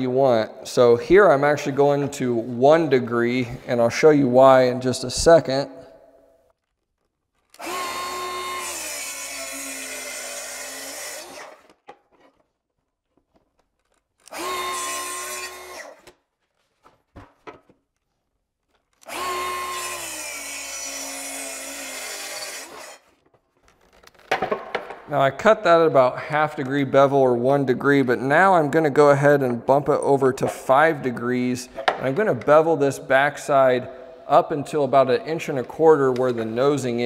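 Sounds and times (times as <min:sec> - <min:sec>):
circular saw cutting wood: 0:07.5 - 0:11.8, 0:14.2 - 0:16.1, 0:19.0 - 0:23.2.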